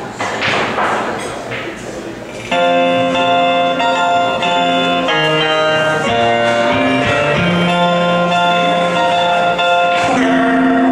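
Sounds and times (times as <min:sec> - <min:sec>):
music with sustained chords: 0:02.6 - 0:10.9.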